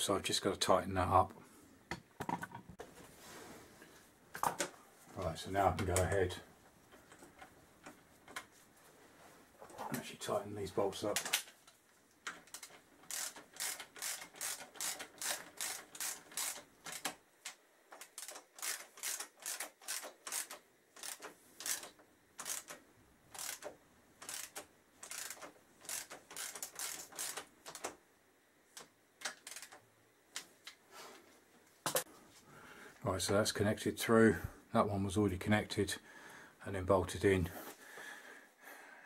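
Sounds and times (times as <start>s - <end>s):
ratchet spanner clicking: 12.4s - 17.1s, 18.0s - 27.8s, 29.2s - 29.8s.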